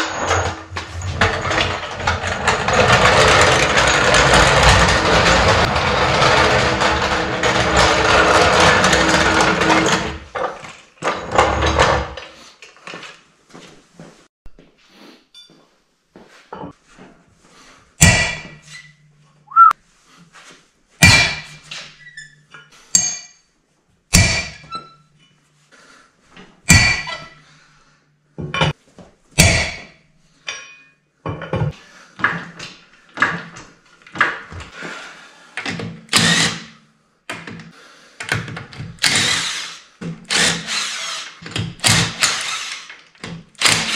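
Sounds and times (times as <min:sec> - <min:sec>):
metallic clanks of tools: 0:00.0 - 0:08.4, 0:15.3 - 0:15.6, 0:30.5 - 0:33.5
floor jack rolling on concrete: 0:00.0 - 0:13.2, 0:38.3 - 0:43.9.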